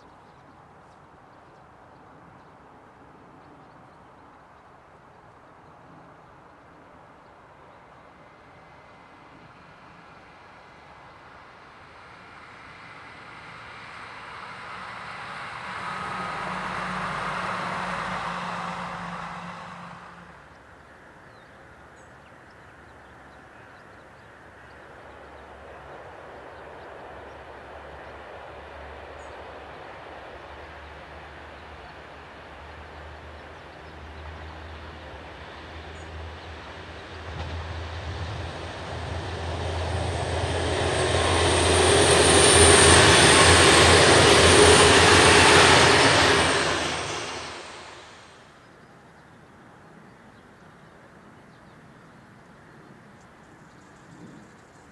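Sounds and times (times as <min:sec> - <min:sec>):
train passing: 0:06.4 - 0:22.1, 0:24.4 - 0:48.8
vehicle engine hum: 0:11.7 - 0:21.0, 0:24.7 - 0:48.5.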